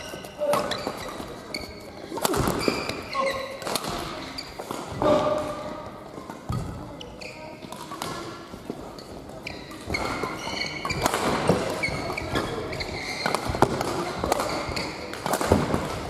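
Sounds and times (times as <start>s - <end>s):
shoes squeaking on floor: 0.0s - 15.1s
rackets hitting shuttlecock: 0.1s - 6.8s, 7.6s - 9.0s, 9.6s - 16.0s.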